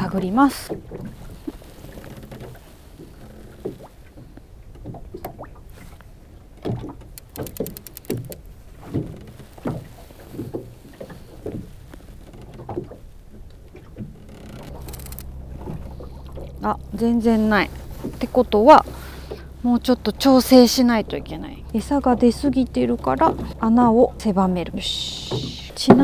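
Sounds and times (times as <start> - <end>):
water slapping against boat hull: 0.0 - 26.0
fine clicks: 6.0 - 9.4, 11.9 - 19.5.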